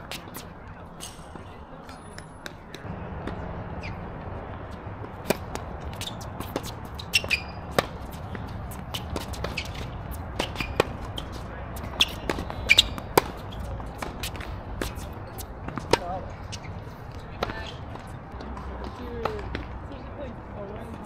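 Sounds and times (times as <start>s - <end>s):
tennis balls hit and bouncing: 0.0s - 21.0s
rubber shoe squeaks: 3.8s - 4.1s, 5.3s - 16.9s.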